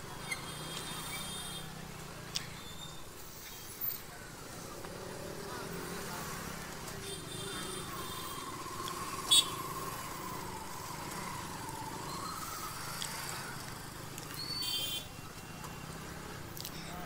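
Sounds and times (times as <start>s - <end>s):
street traffic: 0.0s - 17.0s
scooter engine running: 4.8s - 14.4s.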